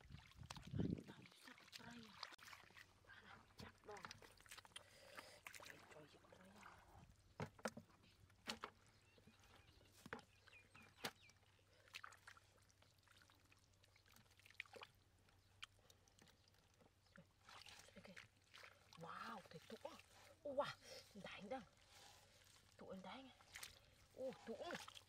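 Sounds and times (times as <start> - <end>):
hands splashing in muddy water: 21.8 - 25.0.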